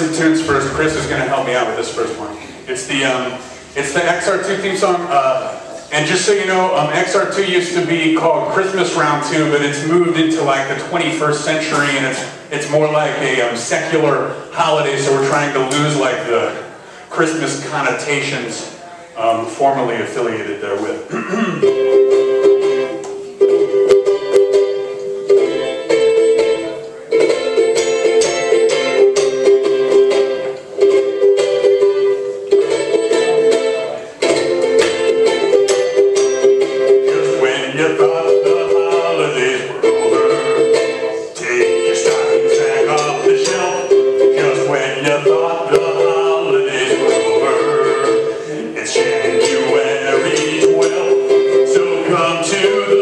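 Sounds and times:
wavering melody: 0.0s - 2.7s, 32.8s - 48.4s
ukulele strumming: 0.0s - 16.7s, 21.5s - 53.0s.

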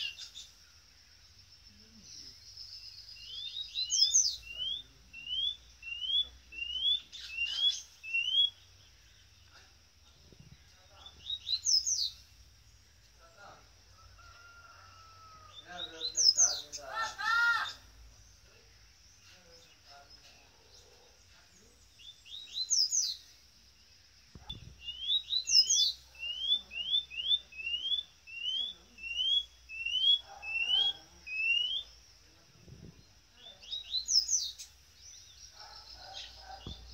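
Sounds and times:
bird singing whistled notes: 0.0s - 0.6s, 1.3s - 9.6s, 10.4s - 12.2s, 21.9s - 23.4s, 24.3s - 36.9s.

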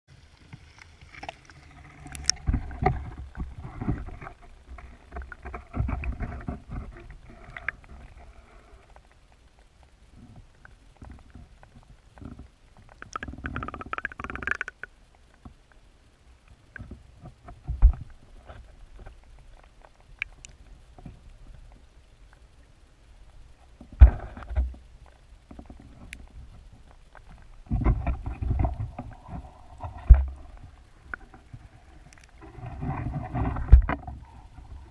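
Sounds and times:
underwater knocks and thumps: 2.1s - 8.0s, 11.0s - 14.9s, 23.8s - 24.8s, 27.6s - 31.6s, 32.5s - 34.8s.

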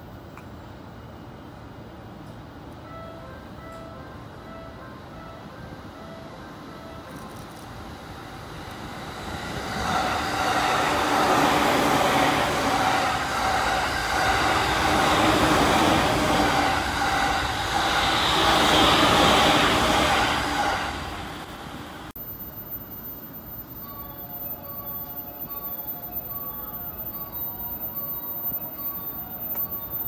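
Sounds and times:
electric train passing: 0.9s - 30.0s
steady hum: 22.2s - 30.0s.

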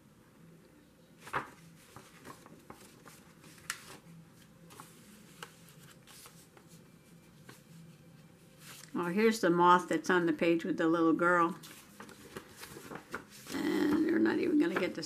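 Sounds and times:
paper rustling and crinkling: 1.2s - 9.0s, 11.5s - 15.0s.

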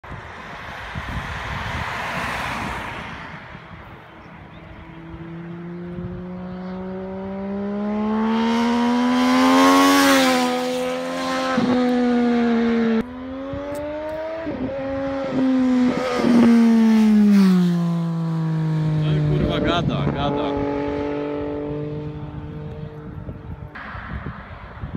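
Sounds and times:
car tyre noise: 0.0s - 7.4s
motorcycle engine accelerating: 3.4s - 24.9s.

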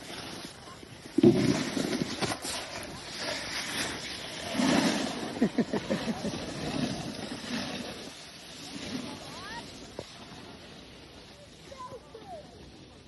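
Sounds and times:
snowboards scraping over snow: 0.0s - 13.0s.

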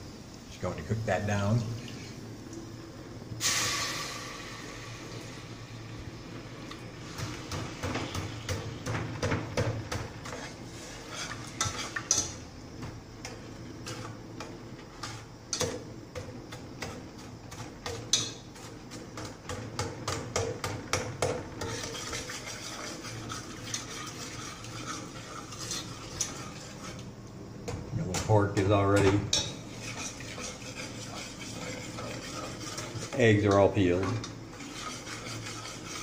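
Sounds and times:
metal spoon scraping a pot: 10.2s - 12.4s, 21.6s - 27.0s, 29.3s - 36.0s.

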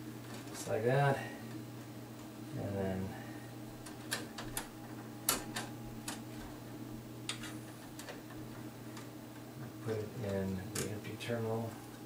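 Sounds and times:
steady low hum: 0.0s - 12.0s
wire clicking against metal: 3.8s - 6.2s.

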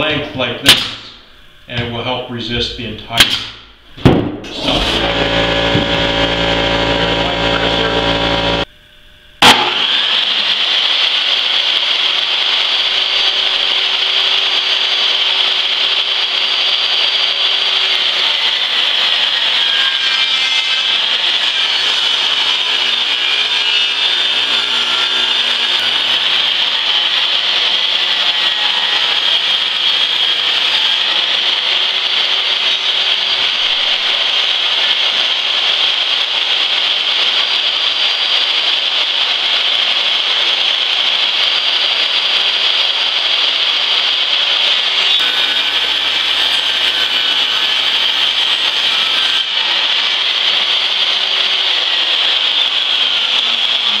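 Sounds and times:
table saw ripping board: 3.2s - 8.7s, 9.4s - 10.8s.

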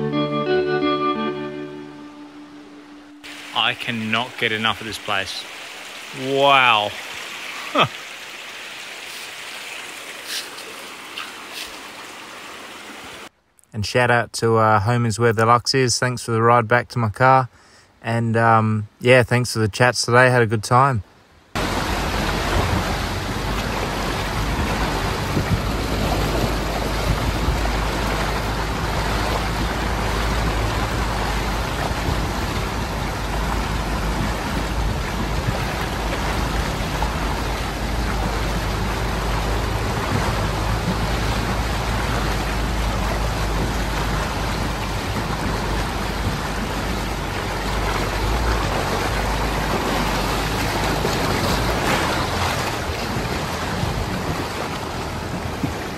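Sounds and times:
water rushing and splashing: 0.9s - 13.4s, 19.8s - 55.9s
vehicle low rumble: 21.6s - 55.9s.

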